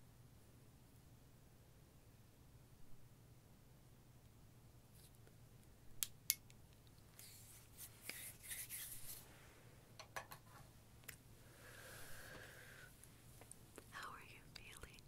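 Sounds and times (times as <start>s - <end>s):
soft rustling: 7.0s - 9.7s.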